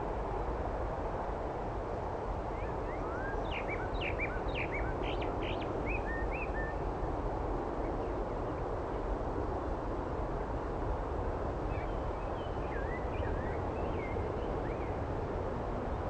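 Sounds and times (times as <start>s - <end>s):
songbird twittering: 2.6s - 6.8s.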